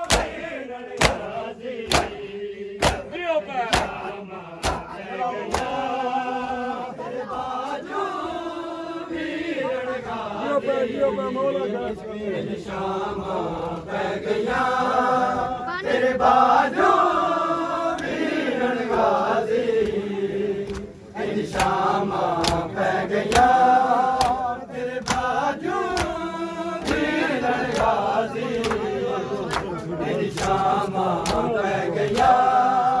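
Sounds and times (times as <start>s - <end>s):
hands slapping bare chests: 0.0s - 3.1s, 3.7s - 5.8s, 20.6s - 20.9s, 21.5s - 21.8s, 22.4s - 23.6s, 24.2s - 26.2s, 26.8s - 27.1s, 27.7s - 28.0s, 28.6s - 31.5s, 32.1s - 32.4s
men chanting a lament: 0.0s - 33.0s.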